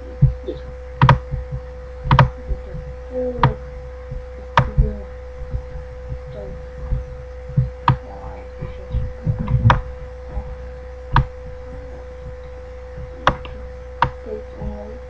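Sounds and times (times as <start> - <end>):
soft low thuds: 0.0 - 15.0
steady electrical hum: 0.0 - 15.0
computer mouse clicking: 1.0 - 1.2, 2.1 - 2.3, 13.2 - 14.2.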